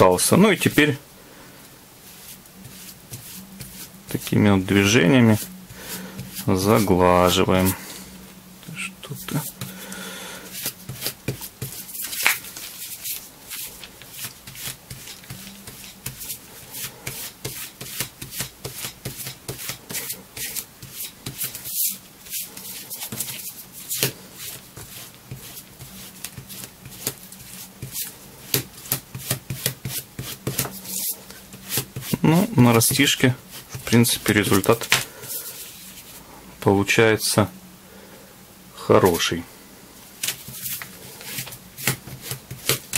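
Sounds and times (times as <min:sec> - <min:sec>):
spatula scraping leather: 0:02.1 - 0:07.8, 0:10.5 - 0:36.1, 0:40.2 - 0:42.9.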